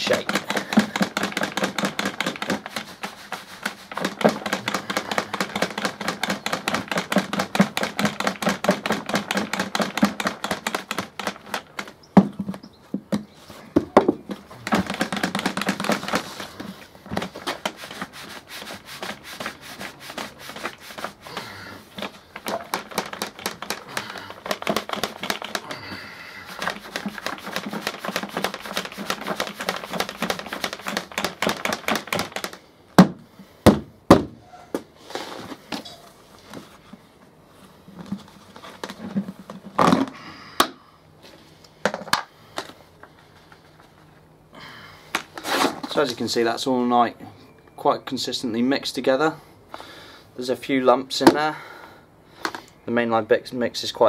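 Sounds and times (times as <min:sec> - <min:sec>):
plastic bucket of powder rattling: 0:00.0 - 0:13.2, 0:13.9 - 0:33.2, 0:37.9 - 0:40.3.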